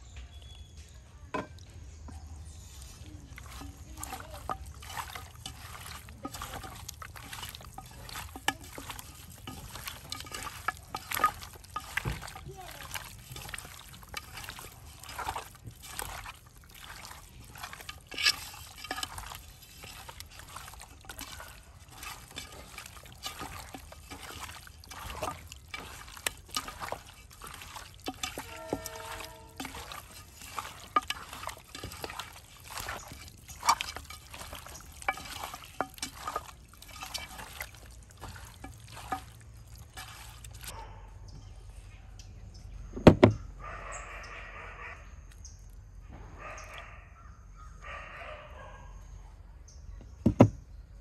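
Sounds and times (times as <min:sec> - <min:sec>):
water trickling and pouring: 0:02.4 - 0:40.8.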